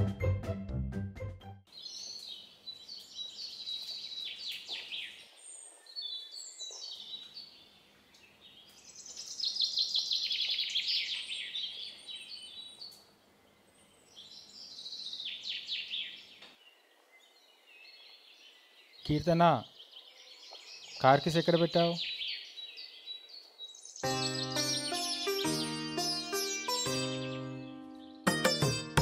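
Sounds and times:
background music: 0.0 - 1.7, 24.0 - 29.0
small birds trilling: 1.7 - 28.2.

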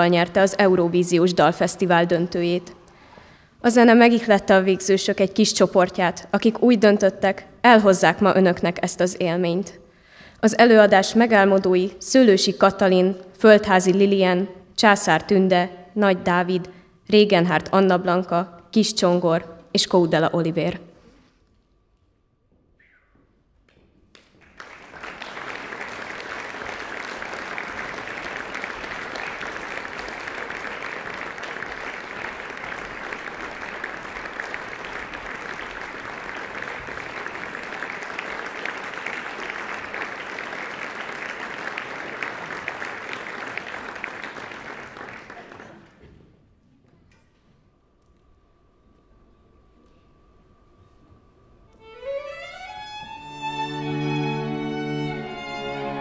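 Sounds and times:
audience applause: 24.1 - 46.0, 52.8 - 56.0.

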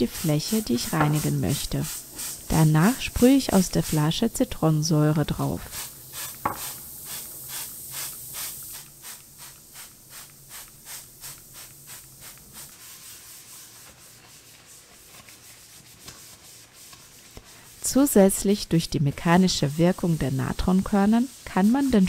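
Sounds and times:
scrubbing ceramic sink: 0.0 - 1.8.

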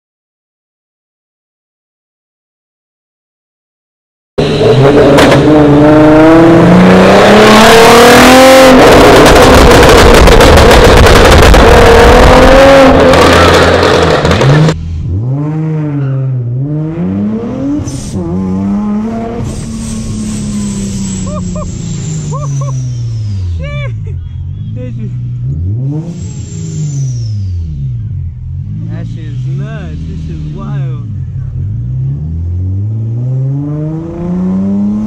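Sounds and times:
car accelerating past: 4.4 - 23.6, 31.0 - 35.0
car engine revving in cabin: 4.4 - 35.0
supercharger whine: 4.4 - 35.0.

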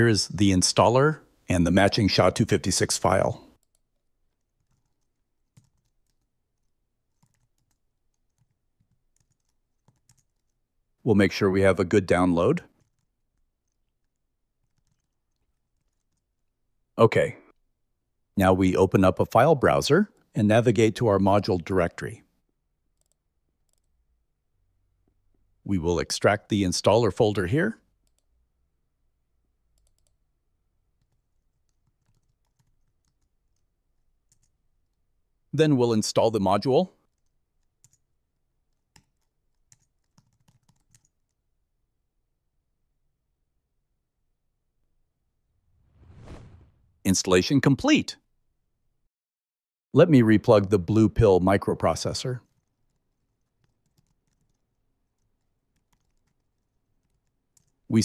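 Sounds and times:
computer keyboard keystrokes: 4.6 - 10.6, 12.8 - 16.2, 29.8 - 30.2, 31.0 - 33.6, 37.1 - 38.0, 38.7 - 41.3, 52.5 - 57.8.

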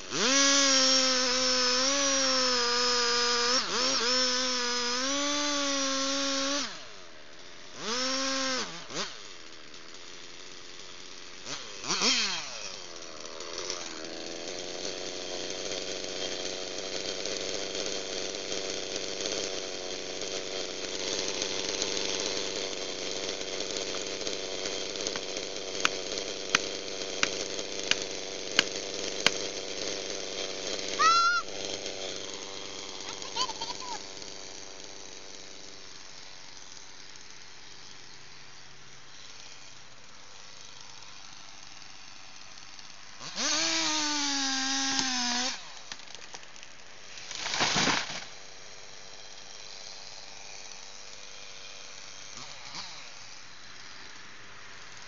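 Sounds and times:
chainsaw idling: 0.0 - 55.0
loud wordless shout: 31.0 - 31.4
tree crashing to the ground: 47.2 - 48.3.

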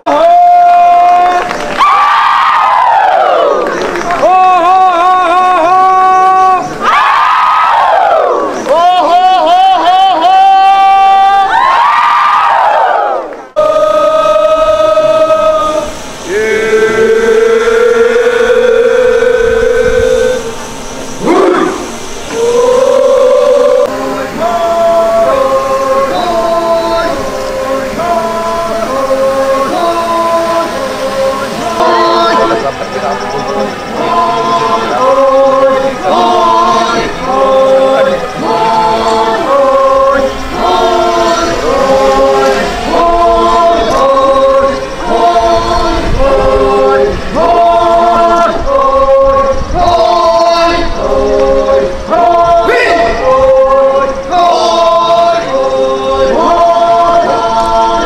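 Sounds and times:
men singing a chant in parts: 13.5 - 20.6, 21.2 - 58.0.

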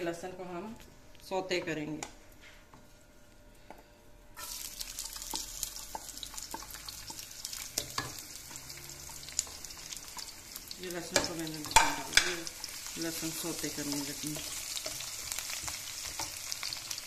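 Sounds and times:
garlic sizzling in oil: 4.4 - 17.0.

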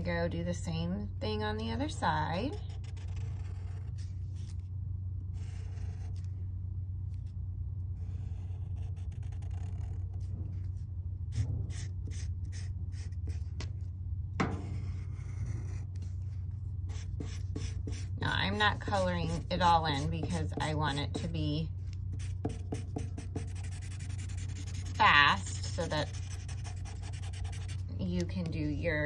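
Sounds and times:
low hum: 0.0 - 29.0
marker scratching on paper: 2.4 - 4.7, 5.4 - 6.3, 8.0 - 13.9, 14.6 - 28.8.

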